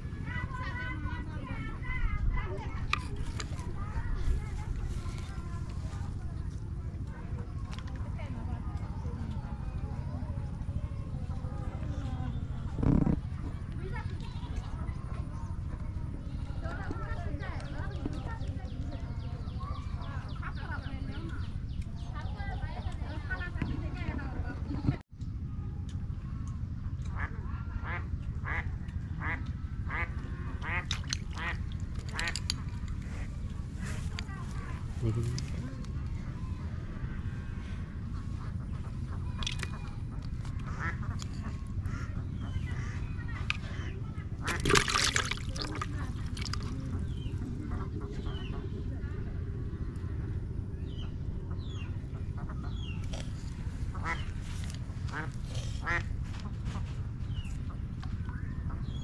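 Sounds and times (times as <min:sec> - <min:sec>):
ducks quacking: 0:27.1 - 0:33.3, 0:38.2 - 0:48.7, 0:52.3 - 0:56.6
splashes in water: 0:30.6 - 0:32.5, 0:44.4 - 0:47.2
small birds chirping: 0:30.6 - 0:56.0
duck quacking: 0:53.9 - 0:54.3, 0:55.1 - 0:56.1.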